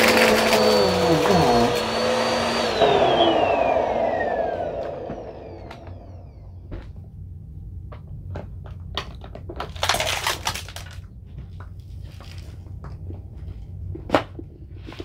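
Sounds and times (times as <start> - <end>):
vacuum cleaner spinning down: 0.0 - 7.1
small clicks and crackles: 8.4 - 15.0.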